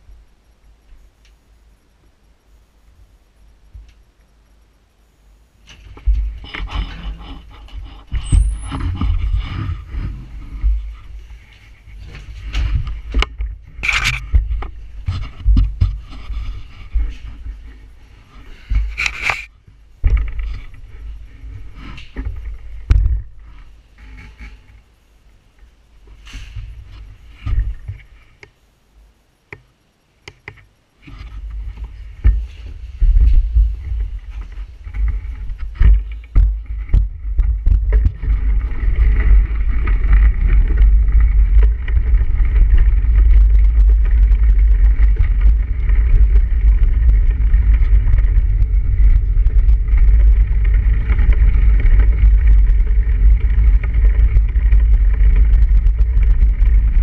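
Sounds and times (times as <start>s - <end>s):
bike tyres on snow: 5.0s - 28.6s, 30.9s - 57.0s
wind noise on microphone: 5.0s - 28.6s, 30.5s - 57.0s
knocks and clicks: 33.1s - 57.0s.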